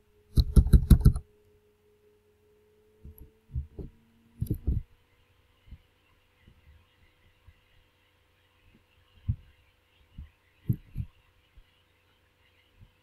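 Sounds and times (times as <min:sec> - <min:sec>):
faint steady hum: 0:00.0 - 0:13.0
low thuds and clicks: 0:00.3 - 0:01.2, 0:03.0 - 0:04.9, 0:10.2 - 0:11.1.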